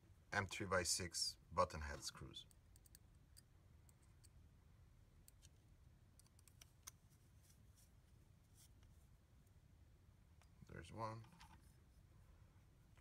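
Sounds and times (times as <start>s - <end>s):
small clicks and taps of handling: 6.2s - 7.2s.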